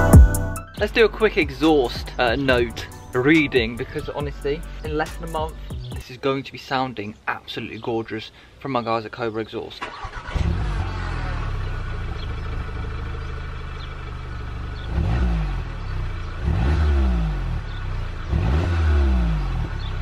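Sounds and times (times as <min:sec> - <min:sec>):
car engine idling: 0:09.9 - 0:20.0
car engine revving: 0:10.0 - 0:20.0.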